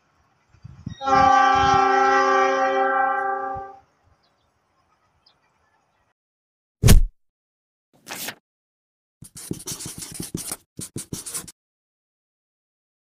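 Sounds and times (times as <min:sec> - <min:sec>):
loud thump with deep boom: 0:06.8 - 0:07.1
marker pen scratching on paper: 0:09.2 - 0:11.6.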